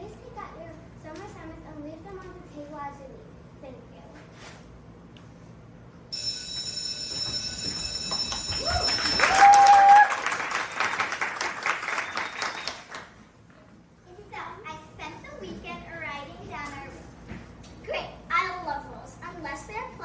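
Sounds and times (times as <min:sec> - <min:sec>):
electric school bell ringing: 0:06.1 - 0:10.1
audience applauding: 0:08.1 - 0:13.2
loud whoop: 0:08.6 - 0:10.7.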